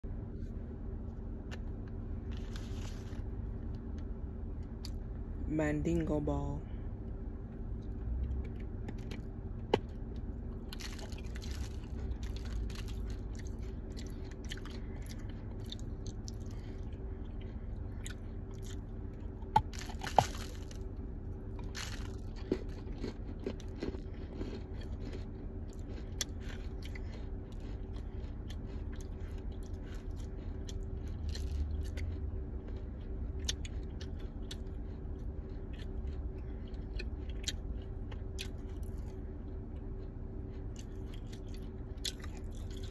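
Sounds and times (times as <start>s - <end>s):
faint steady hum: 0.0s - 42.9s
dried clay crunching and crumbling: 1.1s - 3.8s, 8.2s - 37.7s.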